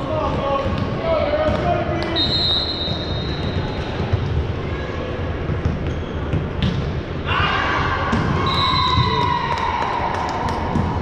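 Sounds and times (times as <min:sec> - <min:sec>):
basketballs bouncing on gym floor: 0:00.0 - 0:04.5, 0:05.4 - 0:07.0, 0:08.1 - 0:09.5, 0:10.2 - 0:11.0.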